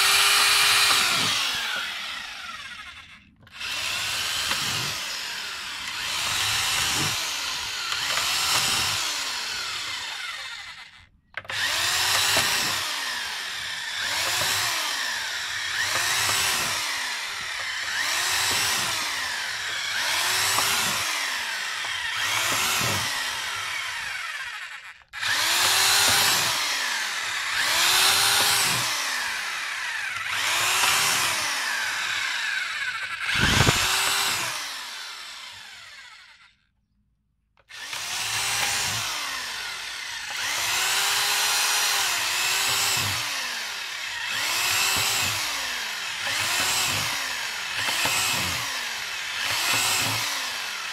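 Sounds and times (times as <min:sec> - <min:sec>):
electric drill boring through plastic: 0:00.0 - 0:36.8, 0:37.6 - 0:50.9.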